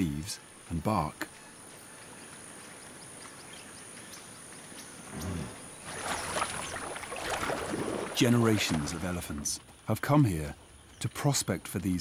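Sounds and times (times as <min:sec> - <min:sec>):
high insect chorus: 0:00.0 - 0:12.0
elephant feet splashing in water: 0:05.8 - 0:09.5.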